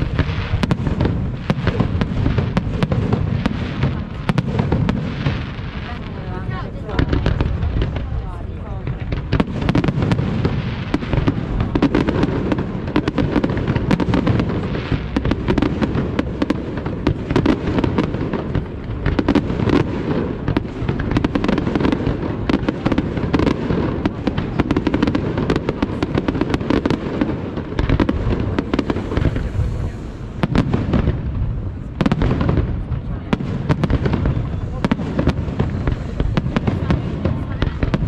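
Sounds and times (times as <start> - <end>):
fireworks bursts and crackle: 0.0 - 38.0.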